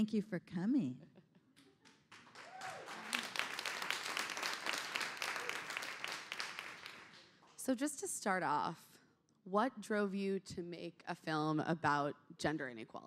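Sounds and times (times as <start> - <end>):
audience applauding: 1.8 - 7.4.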